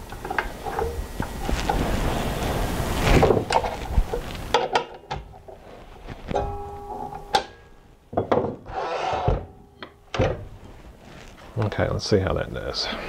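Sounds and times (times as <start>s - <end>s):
metallic ring: 6.3s - 7.8s
metal scraping rub: 8.6s - 9.6s.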